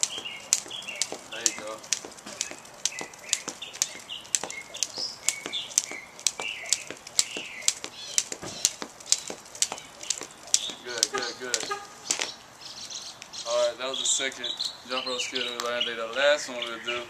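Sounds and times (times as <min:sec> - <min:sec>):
jump rope slapping concrete: 0:00.0 - 0:12.4.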